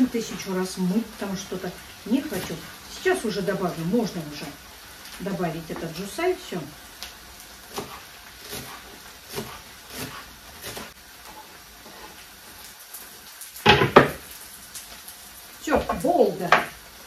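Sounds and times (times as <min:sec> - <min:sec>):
knife chopping on wooden board: 0:07.7 - 0:11.0
cutting board clattering: 0:13.6 - 0:14.2.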